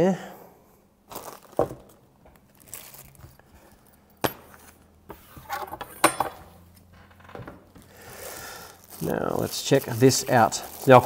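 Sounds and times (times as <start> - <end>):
accessories clinking on table: 5.8 - 7.5.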